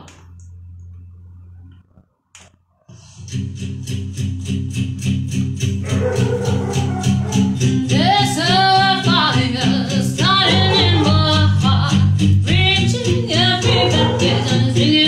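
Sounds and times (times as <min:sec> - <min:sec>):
backing music with guitar: 0:03.0 - 0:15.0
woman singing into a microphone: 0:07.8 - 0:15.0.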